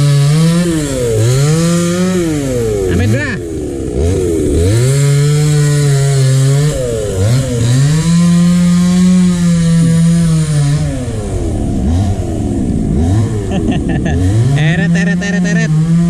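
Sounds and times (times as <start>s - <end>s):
chainsaw revving: 0.0s - 16.0s.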